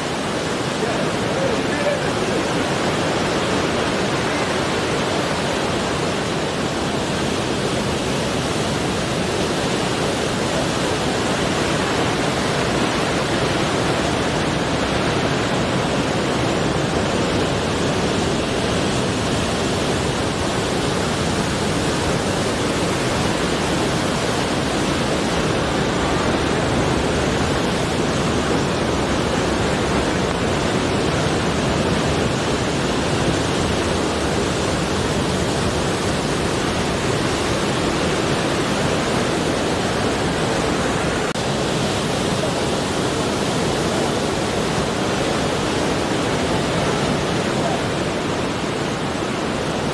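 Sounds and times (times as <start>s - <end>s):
surf breaking over rocks: 0.0s - 49.9s.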